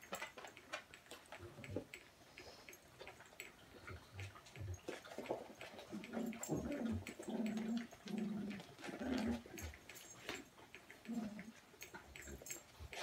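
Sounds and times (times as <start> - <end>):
claws and toys clicking on floor: 0.0 - 13.0
puppies growling: 1.5 - 13.0.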